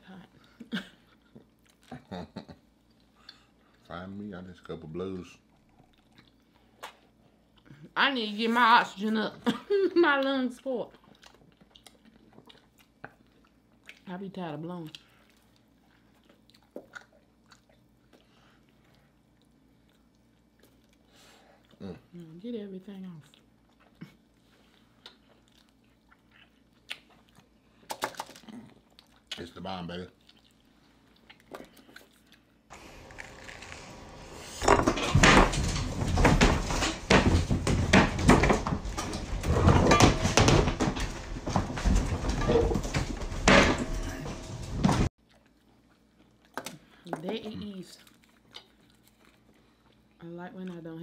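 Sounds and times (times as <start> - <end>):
people chewing: 0.4 - 3.9, 5.4 - 7.9, 10.9 - 14.1, 14.8 - 22.4, 23.2 - 34.6, 44.1 - 50.9
thumps against cupboard doors: 34.6 - 45.1.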